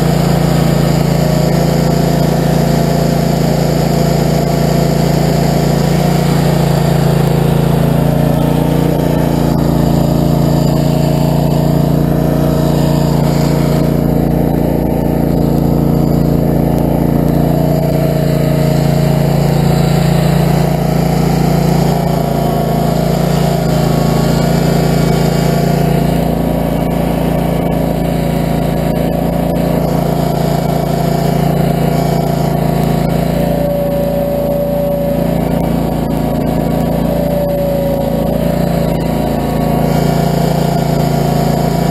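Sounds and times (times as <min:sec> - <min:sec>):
stump grinder engine running: 0:00.0 - 0:41.9.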